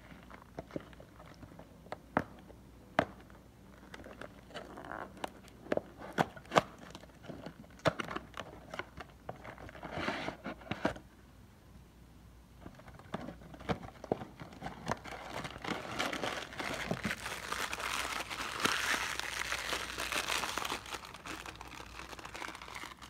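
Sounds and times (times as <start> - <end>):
papery rustling: 13.1 - 23.0.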